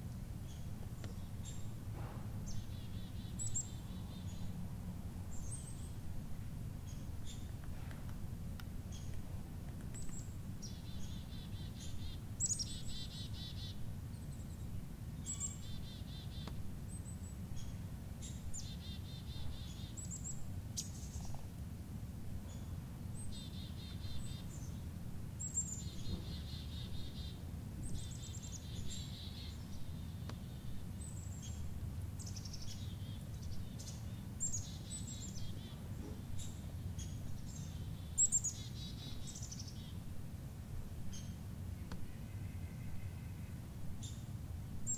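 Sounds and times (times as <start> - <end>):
low outdoor rumble: 0.0 - 44.9
songbird calling: 2.4 - 4.6, 6.8 - 7.6, 9.9 - 21.4, 22.5 - 40.1, 41.1 - 44.9.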